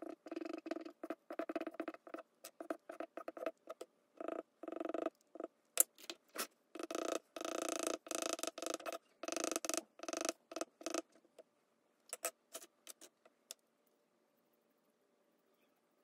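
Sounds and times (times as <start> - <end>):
charcoal rubbing on paper: 0.9 - 3.8.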